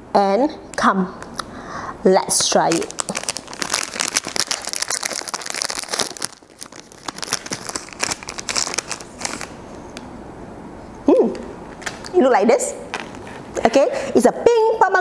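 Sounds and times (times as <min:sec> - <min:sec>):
plastic wrapper crinkling: 0:02.3 - 0:10.0, 0:11.7 - 0:12.2, 0:12.9 - 0:13.6.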